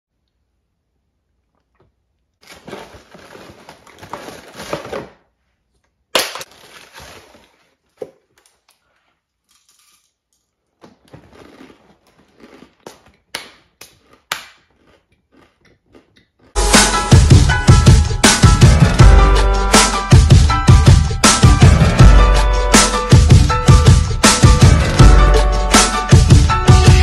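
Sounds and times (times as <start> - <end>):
cereal box crinkling: 2.4 - 5.2, 6.4 - 10.2, 11.0 - 13.2
eating cereal crunching: 6.5 - 16.6.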